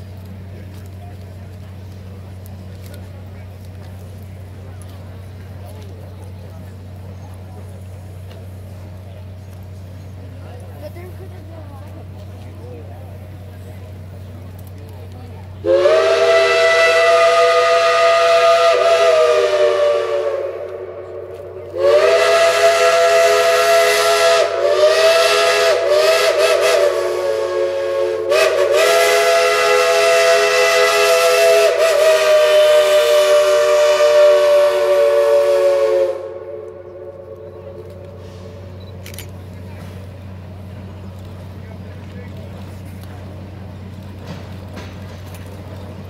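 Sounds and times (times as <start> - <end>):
steam locomotive chime whistle: 15.6 - 21.1, 21.7 - 38.9.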